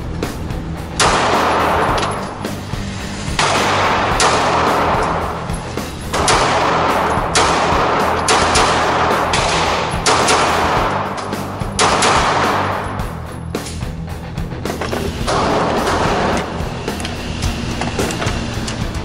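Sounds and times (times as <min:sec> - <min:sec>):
pistol shots with echo: 0:01.0 - 0:02.2, 0:03.4 - 0:05.4, 0:06.1 - 0:13.1, 0:15.3 - 0:16.5.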